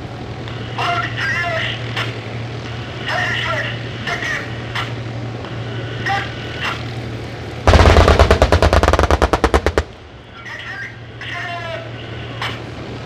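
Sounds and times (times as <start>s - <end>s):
low drone of vehicle engines: 0.0s - 13.0s
rapid automatic gunfire: 7.7s - 10.0s.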